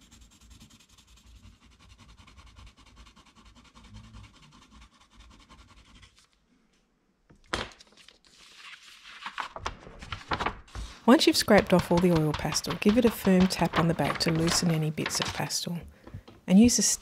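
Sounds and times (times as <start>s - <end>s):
pencil scratching on paper: 0.0s - 6.3s, 10.8s - 15.6s
tool scraping pastel off paper: 0.0s - 6.3s, 10.7s - 15.6s.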